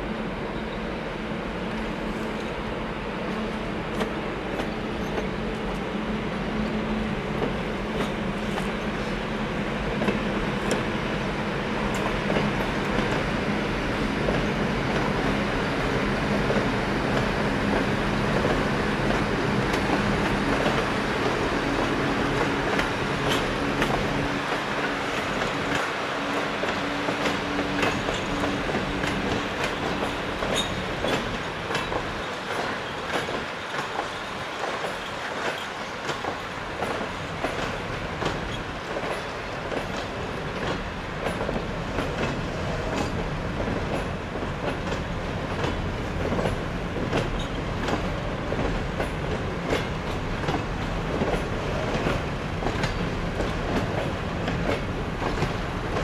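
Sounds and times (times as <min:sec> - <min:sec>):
train wheels rumbling on rails: 0:00.0 - 0:56.0
wheels clicking over rail joints: 0:18.4 - 0:56.0.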